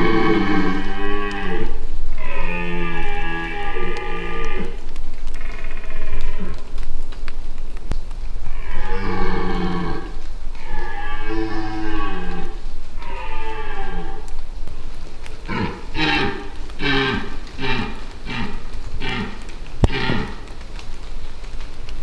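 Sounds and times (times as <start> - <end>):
deer stag roaring: 0.0 - 4.8, 8.6 - 14.3, 15.5 - 20.4.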